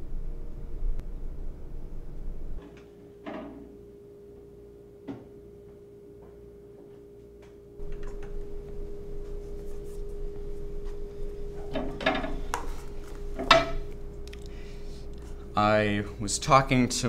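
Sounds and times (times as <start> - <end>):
electrical hum: 0.0 - 17.0
sharp knocks and clatters: 11.6 - 12.7.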